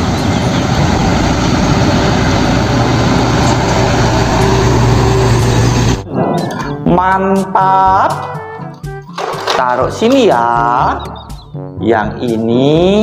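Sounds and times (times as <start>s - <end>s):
heavy truck engine humming: 0.0s - 6.1s.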